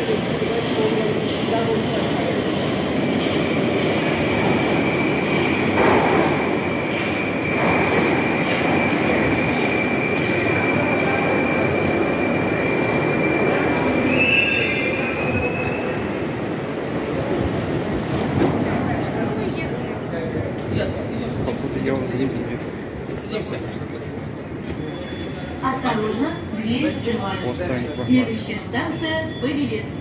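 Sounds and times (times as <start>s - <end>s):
metro train rumbling: 0.0s - 30.0s.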